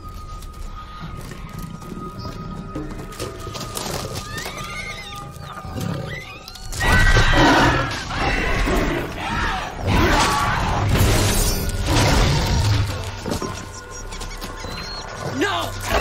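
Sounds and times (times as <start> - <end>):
film score music: 0.0 - 16.0
shrill creature screeches: 4.2 - 10.8.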